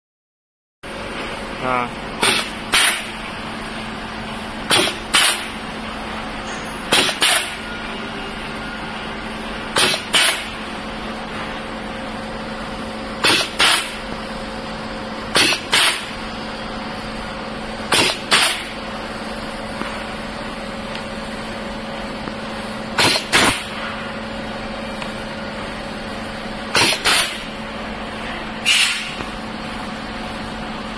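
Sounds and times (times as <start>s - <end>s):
steady low hum: 0.8s - 30.9s
sharp pneumatic air bursts: 2.2s - 3.2s, 4.6s - 5.6s, 6.4s - 7.6s, 9.7s - 10.6s, 13.2s - 14.1s, 15.3s - 16.2s, 17.9s - 18.8s, 23.0s - 24.0s, 26.7s - 27.6s, 28.6s - 29.4s.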